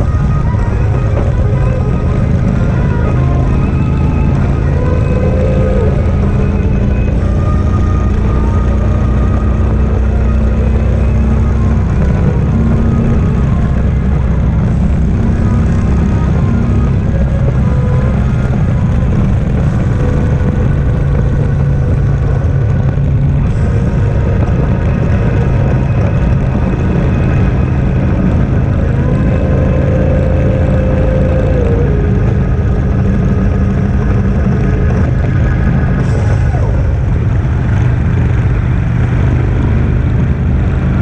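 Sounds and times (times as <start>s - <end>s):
motorcycle engine running: 0.0s - 41.0s
wind rushing over microphone: 0.0s - 41.0s.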